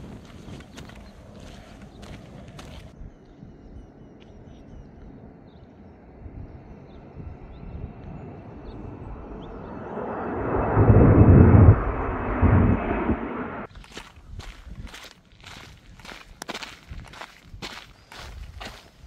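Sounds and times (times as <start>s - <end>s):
airplane passing over: 4.6s - 13.7s.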